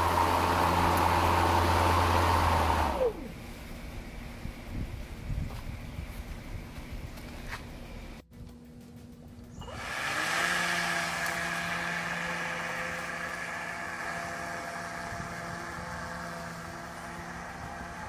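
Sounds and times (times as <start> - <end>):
electric lawn mower cutting grass: 0.0 - 3.4, 9.6 - 18.0.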